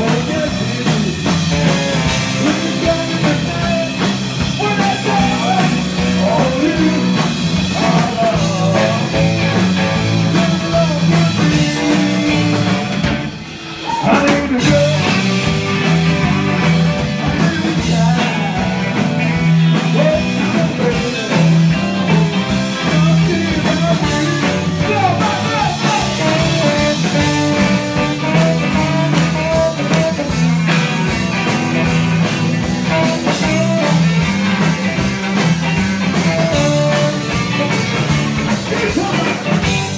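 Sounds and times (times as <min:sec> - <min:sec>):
lead vocal singing: 0:00.0 - 0:12.9, 0:13.7 - 0:30.3, 0:38.5 - 0:39.9
drums: 0:00.0 - 0:39.9
electric guitars: 0:00.0 - 0:39.9
upright bass: 0:00.0 - 0:39.9.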